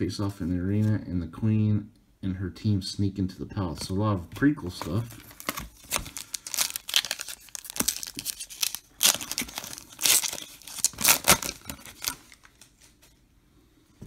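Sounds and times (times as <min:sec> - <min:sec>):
foil wrapper tearing: 0:05.1 - 0:12.9.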